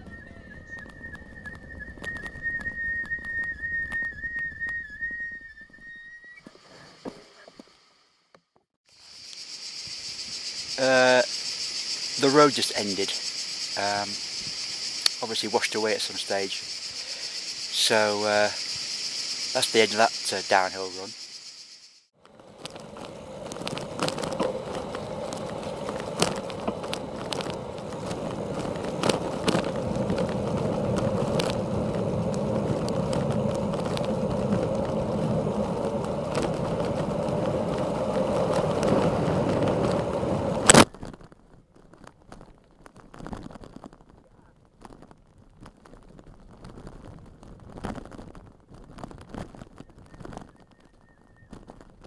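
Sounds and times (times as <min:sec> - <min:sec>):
bicycle wind and tyre rush: 0:22.2 - 0:41.3, 0:44.8 - 0:52.0
bicycle knocks and rattles: 0:22.2 - 0:43.9.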